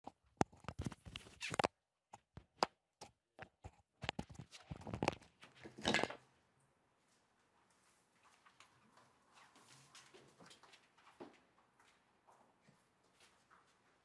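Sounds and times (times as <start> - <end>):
bedding and clothes rustling: 7.0 - 14.0
footsteps: 7.6 - 14.0.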